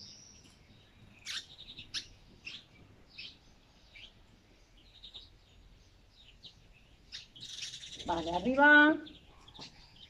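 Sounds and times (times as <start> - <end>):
bird chirps downward-sweeping: 6.2 - 10.0.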